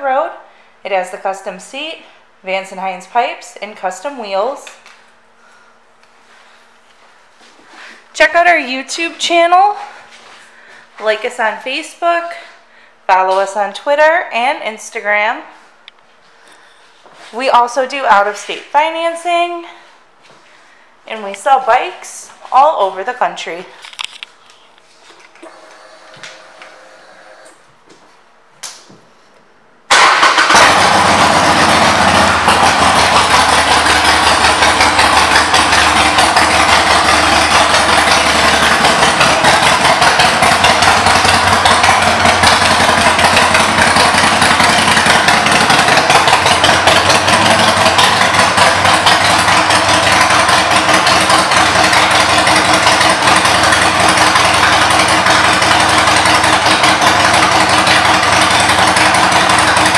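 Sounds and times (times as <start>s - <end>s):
motorcycle engine idling: 30.3s - 59.9s.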